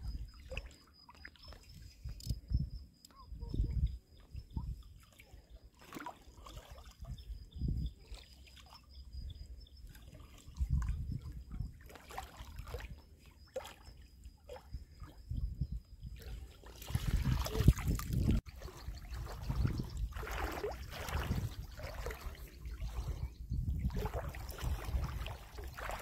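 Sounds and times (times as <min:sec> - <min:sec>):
fish splashing in water: 0:16.6 - 0:23.1, 0:24.0 - 0:26.0.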